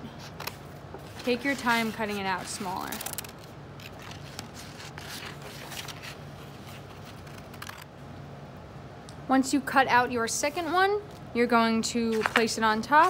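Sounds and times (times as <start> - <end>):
paper rustling: 0.2 - 7.9, 12.0 - 13.0.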